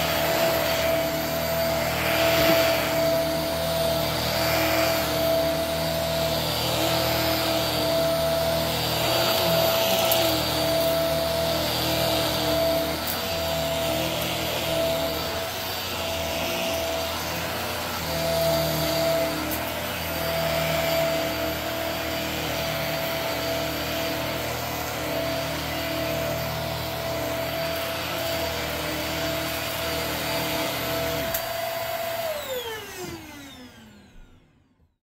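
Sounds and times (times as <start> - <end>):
vacuum cleaner motor whine: 0.0 - 35.0.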